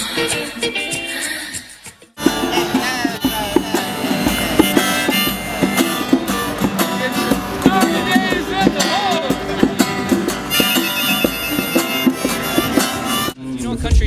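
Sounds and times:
acoustic guitar strumming: 2.2 - 13.4
harmonica: 2.2 - 13.4.

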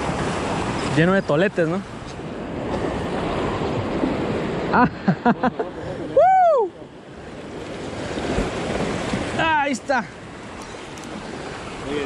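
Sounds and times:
wind on microphone: 0.0 - 4.8
sea surf washing against concrete: 0.0 - 12.0.

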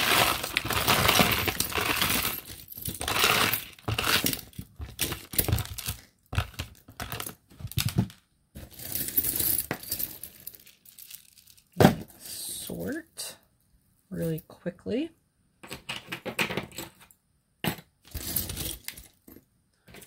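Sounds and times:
jewelry clinking and jangling: 0.0 - 12.1, 18.0 - 20.0.

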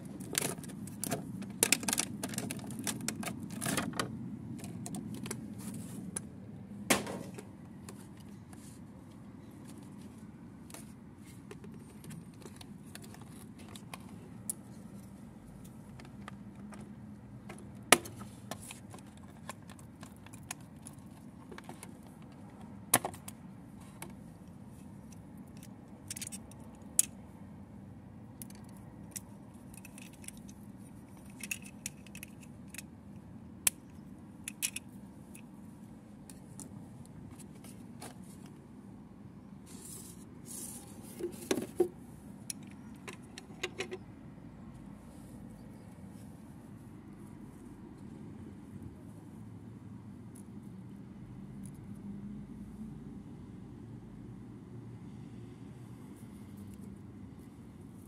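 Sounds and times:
packaging clicks and snaps: 0.2 - 4.0.

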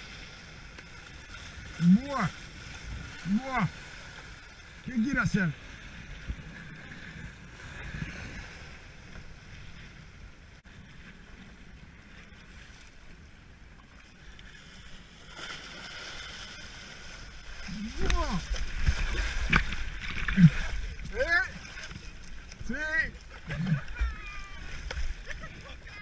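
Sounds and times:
water lapping against board: 14.5 - 26.0.

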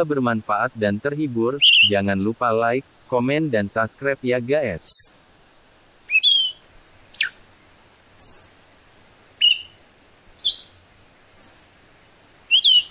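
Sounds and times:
thrush singing whistled phrases: 1.6 - 2.1, 3.0 - 3.4, 6.1 - 6.6, 7.2 - 7.4, 8.2 - 8.6, 9.4 - 9.8, 10.4 - 10.8, 12.5 - 12.9.

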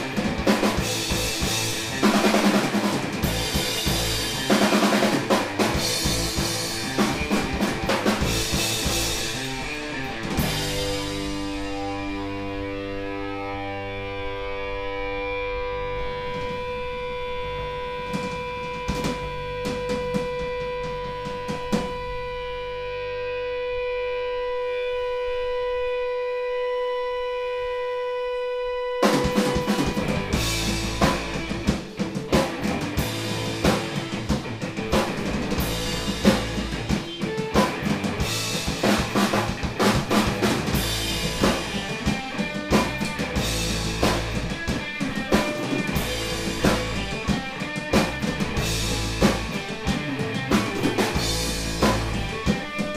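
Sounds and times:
drum hits: 0.0 - 9.6, 29.1 - 52.8
electric guitar tone ringing: 0.0 - 52.9
rock band playing: 0.0 - 52.9.

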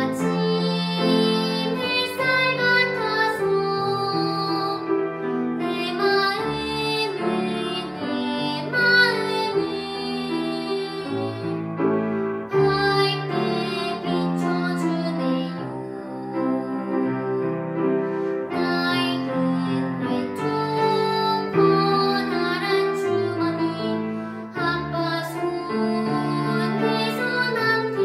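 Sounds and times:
girl singing classical style: 0.0 - 28.0
grand piano accompaniment: 0.0 - 28.0.

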